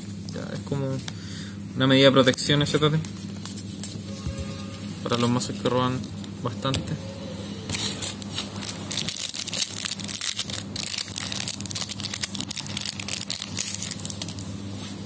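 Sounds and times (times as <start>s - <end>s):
low hum: 3.8s - 15.0s
foil wrapper crinkling: 8.1s - 14.5s.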